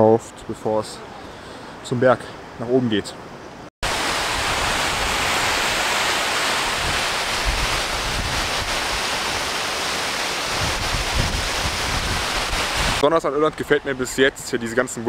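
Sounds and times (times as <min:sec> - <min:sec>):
water rushing over weir: 0:03.8 - 0:14.1
wind buffeting microphone: 0:06.6 - 0:09.4, 0:10.4 - 0:13.0.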